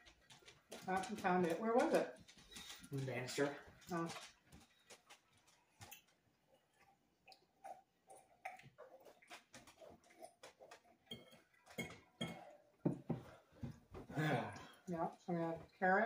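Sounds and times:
cutlery on plates: 11.1s - 13.2s.

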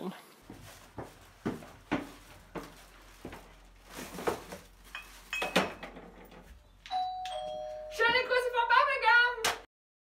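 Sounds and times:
two-note doorbell chime: 6.9s - 8.2s.

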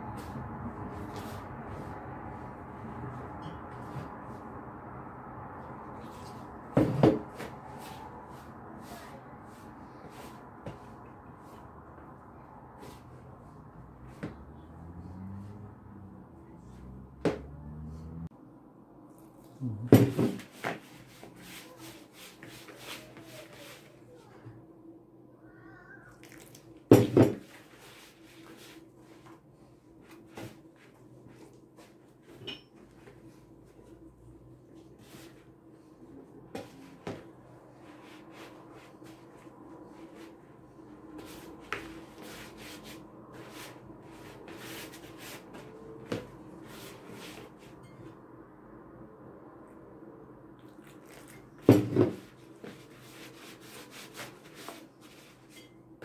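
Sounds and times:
water pouring into a bowl: 26.2s - 26.6s.

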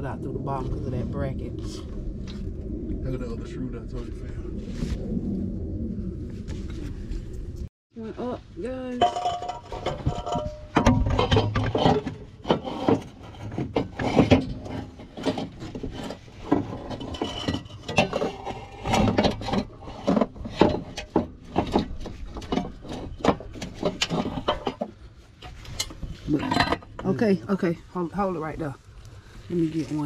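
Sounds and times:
metallic knocks and clunks: 9.0s - 27.3s.

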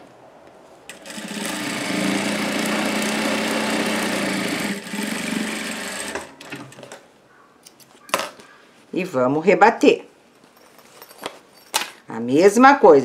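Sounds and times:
sewing machine stitching: 0.9s - 7.0s.

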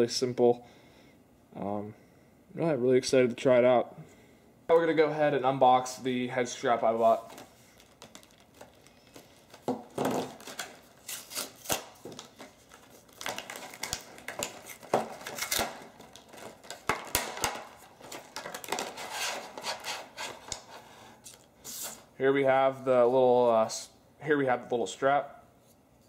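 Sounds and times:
plastic rustling: 6.6s - 22.1s
hard plastic crackling and clicking: 7.3s - 10.8s, 11.6s - 19.0s.

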